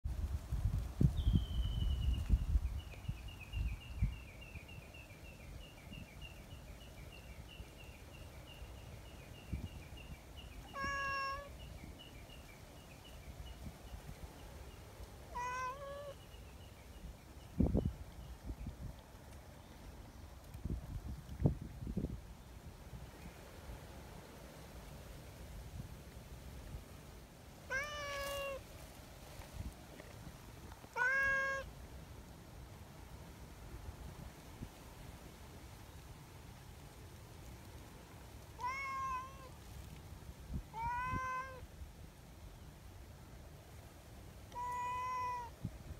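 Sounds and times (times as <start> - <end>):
cat meowing: 10.7 - 11.5, 15.3 - 16.2, 27.7 - 28.6, 30.9 - 31.7, 38.6 - 39.5, 40.7 - 41.6, 44.5 - 45.5.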